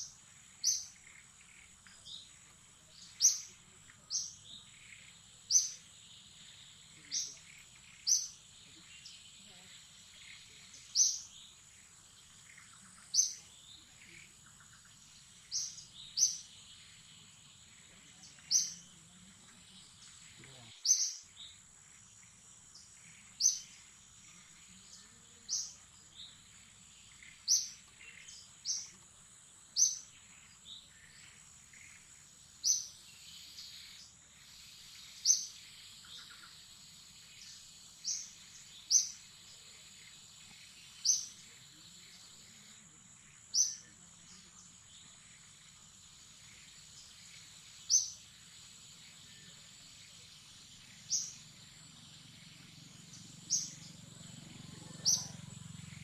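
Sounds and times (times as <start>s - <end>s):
bird chirping: 0.0s - 56.0s
high-pitched insect drone: 45.2s - 56.0s.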